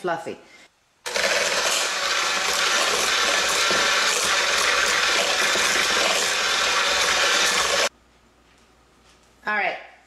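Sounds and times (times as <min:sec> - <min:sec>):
electric hand mixer running: 0:01.1 - 0:07.9.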